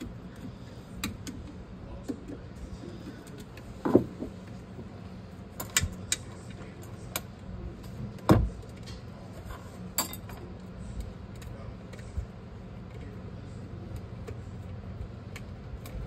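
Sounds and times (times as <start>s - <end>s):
metal tools clinking: 10.0s - 10.4s.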